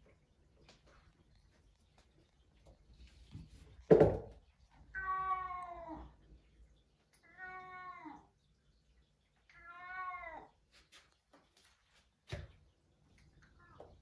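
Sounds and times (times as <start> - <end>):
cat meowing: 4.9 - 6.1, 7.2 - 8.3, 9.5 - 10.5.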